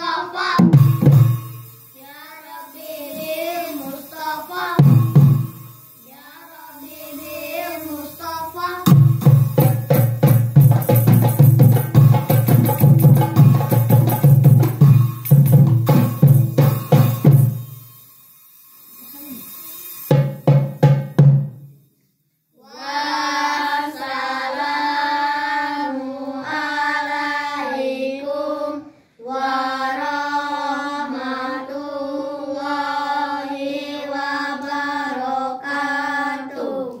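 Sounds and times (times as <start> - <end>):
child singing unaccompanied: 0.0 - 1.4, 2.0 - 10.5, 22.6 - 37.0.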